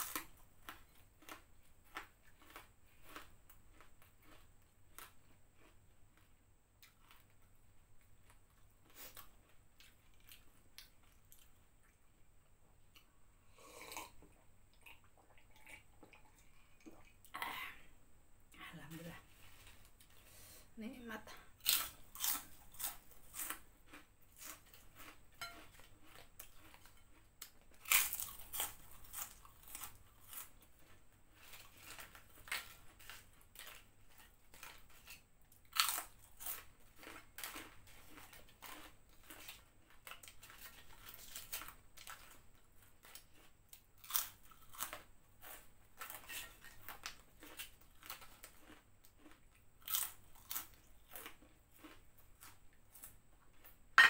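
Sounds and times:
crunching prawn crackers: 0:00.0 - 0:07.4, 0:21.6 - 0:53.8.

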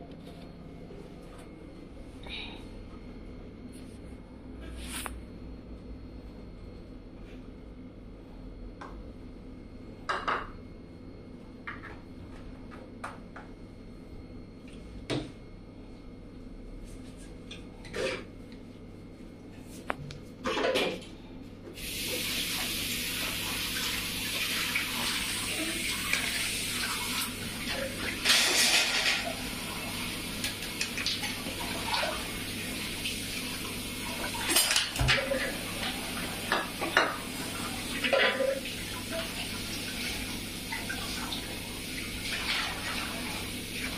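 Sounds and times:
pots and pans clanking: 0:27.7 - 0:29.4, 0:34.3 - 0:37.2, 0:38.0 - 0:38.6.

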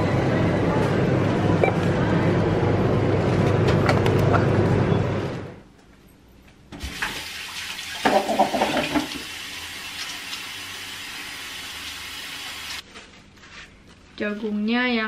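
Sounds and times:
tap running into sink: 0:08.0 - 0:09.3.

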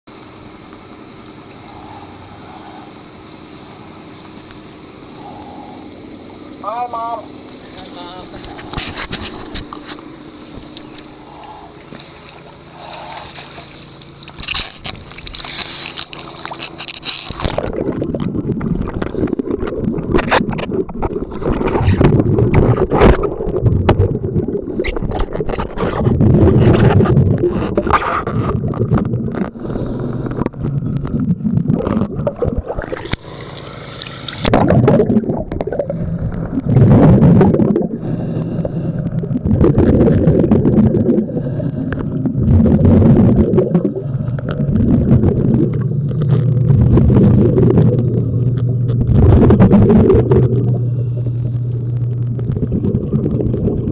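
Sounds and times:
quiet steady hum: 0:00.1 - 0:53.9
underwater bubbling and rumbling: 0:00.1 - 0:53.9.

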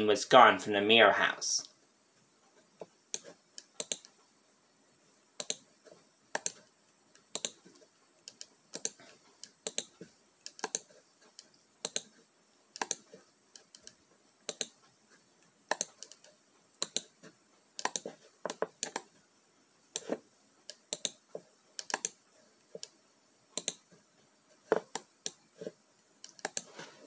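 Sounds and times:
computer keyboard keys clicking: 0:03.6 - 0:04.1, 0:07.3 - 0:07.6, 0:08.2 - 0:09.9, 0:10.5 - 0:10.9, 0:13.6 - 0:14.7, 0:15.7 - 0:17.1, 0:17.8 - 0:19.1, 0:21.8 - 0:22.2.

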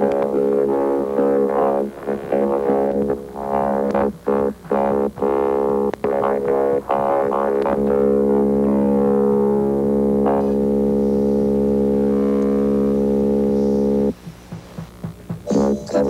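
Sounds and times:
sustained low synthesizer tone: 0:00.0 - 0:14.2
falling synth sweeps: 0:10.1 - 0:14.1.

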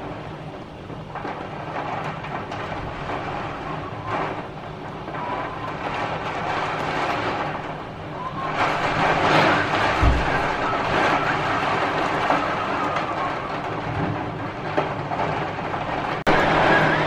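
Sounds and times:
heavy rain and hail: 0:00.0 - 0:17.0
low thump: 0:10.0 - 0:10.5.

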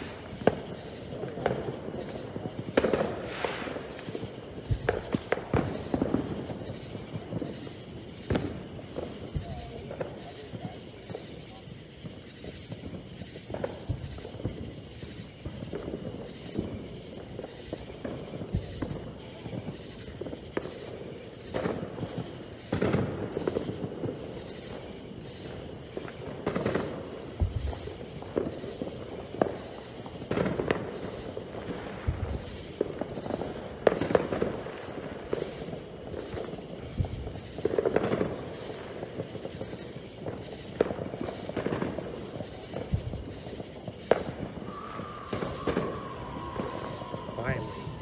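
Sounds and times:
deep fireworks booms: 0:00.0 - 0:48.0
distant fireworks pops and bangs: 0:00.0 - 0:48.0
falling firework whistle: 0:00.0 - 0:48.0.

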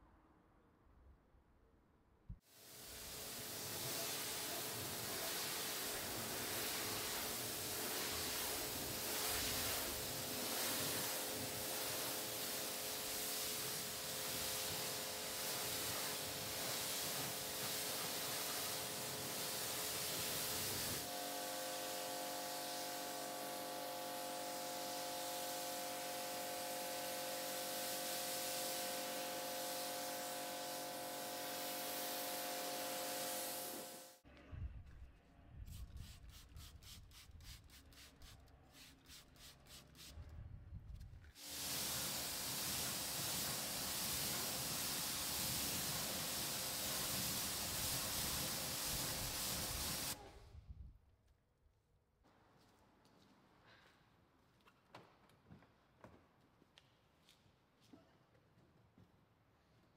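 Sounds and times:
pressure washer water jet hiss: 0:02.5 - 0:34.2, 0:41.4 - 0:50.2.

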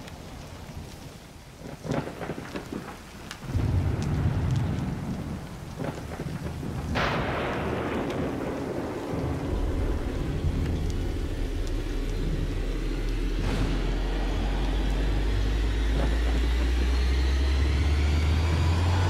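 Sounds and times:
crackling: 0:00.0 - 0:19.0
rain: 0:00.0 - 0:19.0
thunder rumbling: 0:01.6 - 0:19.0
sharp thunderclap: 0:02.0 - 0:17.9.

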